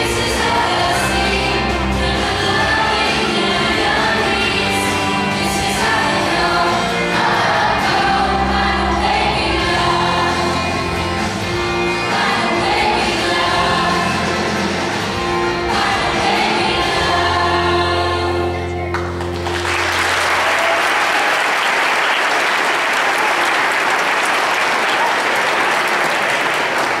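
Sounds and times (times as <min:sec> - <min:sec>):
children singing: 0:00.0 - 0:18.8
applause: 0:18.9 - 0:27.0.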